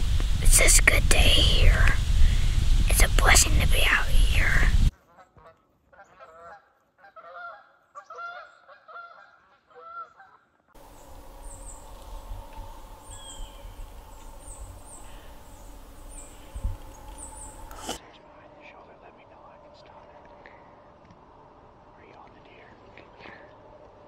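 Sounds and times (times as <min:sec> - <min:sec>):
steady outdoor hiss: 0:00.0 - 0:04.9, 0:10.8 - 0:24.0
geese honking: 0:05.0 - 0:10.4
faint high chirps: 0:10.8 - 0:18.2.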